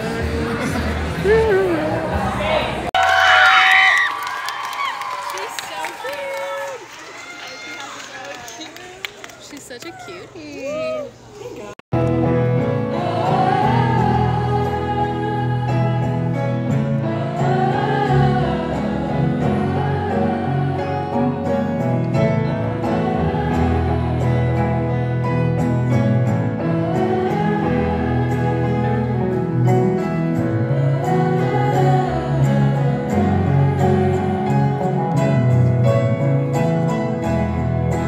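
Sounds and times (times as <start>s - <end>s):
piano: 11.9s - 38.0s
acoustic guitars: 12.0s - 38.0s.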